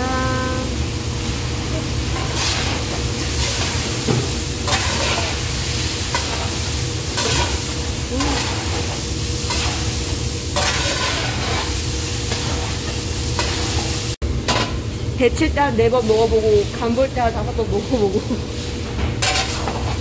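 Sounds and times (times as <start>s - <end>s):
food sizzling in a wok: 0.1s - 20.0s
metal spatula scraping wok: 10.6s - 12.7s, 19.2s - 20.0s.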